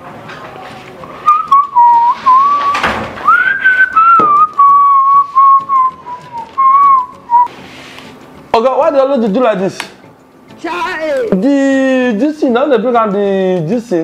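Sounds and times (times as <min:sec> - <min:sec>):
person whistling a tune: 0:01.2 - 0:07.5
knock: 0:04.2 - 0:04.4.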